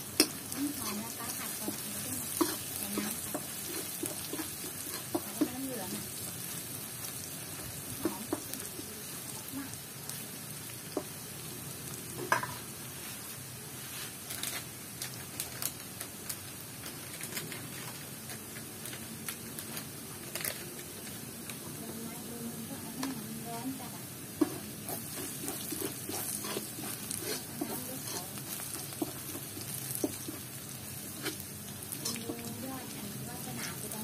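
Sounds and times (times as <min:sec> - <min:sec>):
garlic sizzling in oil: 0:00.0 - 0:34.0
metal spatula stirring: 0:00.2 - 0:06.2, 0:24.4 - 0:32.5.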